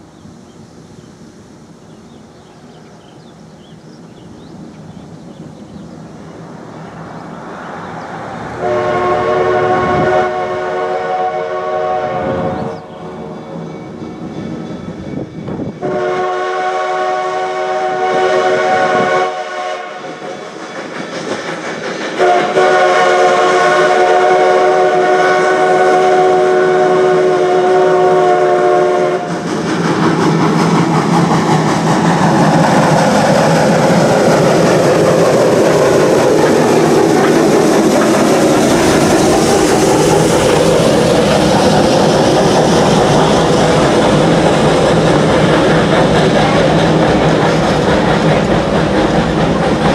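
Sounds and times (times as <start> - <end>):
steam locomotive whistle blasts: 8.6 - 20.2, 22.2 - 29.4
train wheels clattering on rails: 12.5 - 27.3, 28.2 - 49.9.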